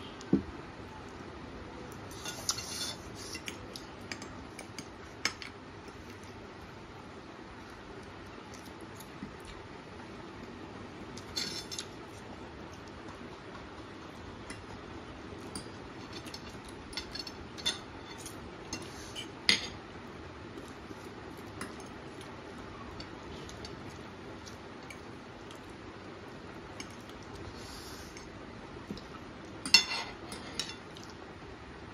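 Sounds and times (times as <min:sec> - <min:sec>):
forks clinking on plates: 0:29.6 - 0:30.9.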